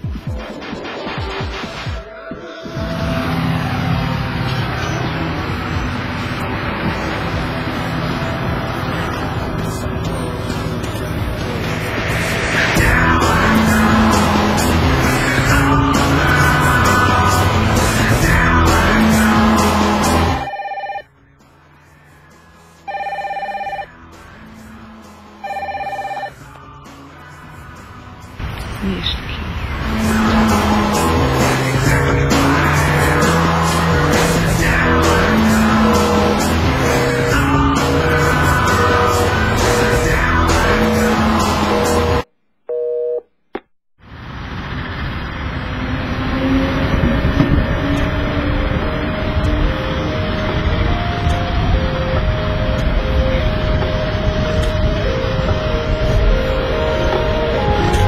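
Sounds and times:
background music: 0.0 - 42.3, 46.8 - 58.0
train rumble: 2.4 - 20.5, 23.9 - 42.2, 44.2 - 58.0
mobile phone ringtone trilling: 20.3 - 21.2, 22.9 - 24.0, 25.4 - 26.4
electronic tone: 20.3 - 21.3, 22.9 - 24.0, 25.4 - 26.4.

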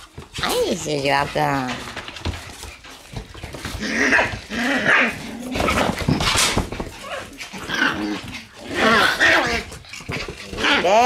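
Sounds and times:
puppies yipping and barking: 2.3 - 11.0.

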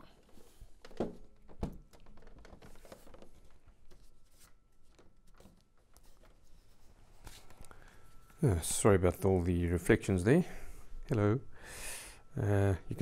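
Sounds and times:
faint rustles and taps: 0.0 - 8.4.

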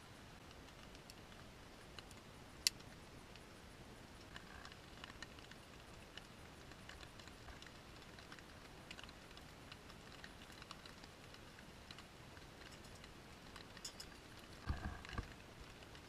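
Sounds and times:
quiet hiss: 0.0 - 16.0
small ticks: 0.4 - 16.0
handling knock and rustle: 13.7 - 15.4.

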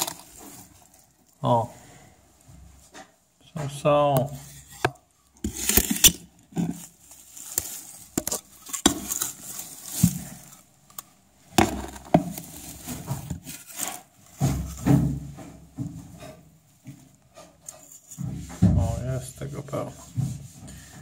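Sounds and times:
compost rustling and scraping: 0.0 - 1.9, 3.6 - 16.4.

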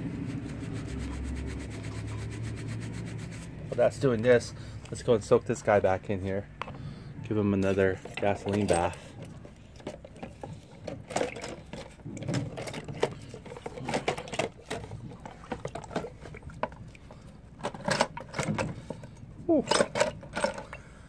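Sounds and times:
metal parts clicking and knocking: 7.9 - 16.7, 17.6 - 20.8.

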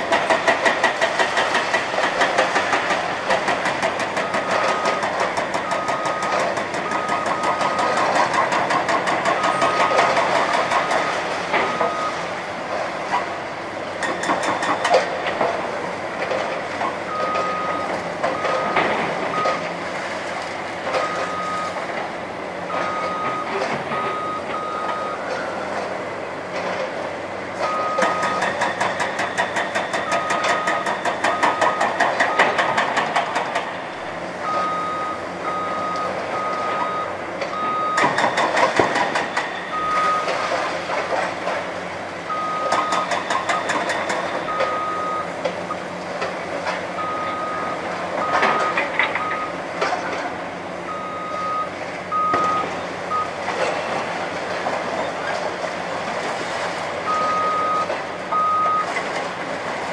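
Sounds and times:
diesel engines running: 0.0 - 59.9
backup alarm beeping: 22.7 - 25.6, 34.4 - 38.3, 39.7 - 40.3, 42.3 - 43.8, 44.4 - 45.4, 47.0 - 49.6, 50.9 - 53.4, 57.1 - 58.9.

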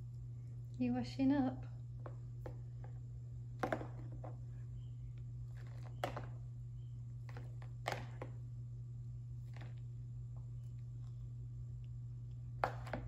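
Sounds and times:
steady low hum: 0.0 - 13.0
plastic cups knocking: 3.6 - 4.4, 5.6 - 6.4, 7.3 - 8.4.

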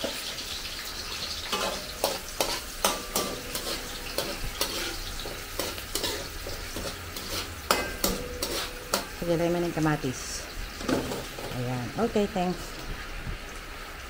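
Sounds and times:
garlic and onion sizzling: 0.0 - 14.0
metal ladle scraping a wok: 1.4 - 9.3.

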